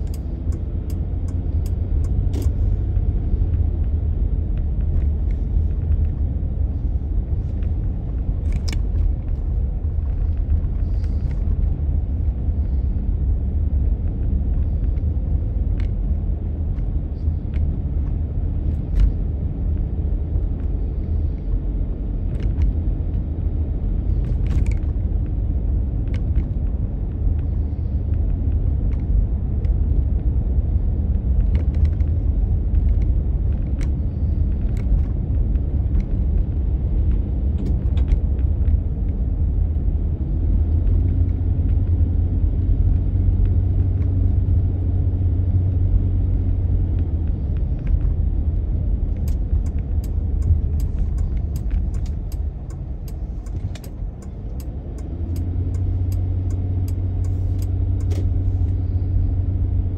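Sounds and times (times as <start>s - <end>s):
road and engine rumble: 0.0s - 59.9s
faint clicks and rattles: 49.0s - 58.4s.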